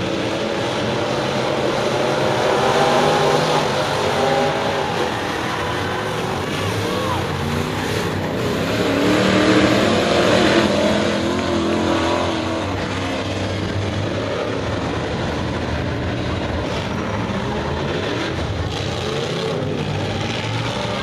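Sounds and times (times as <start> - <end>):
distant drone of race cars: 0.0 - 21.0
race cars passing close: 0.0 - 21.0.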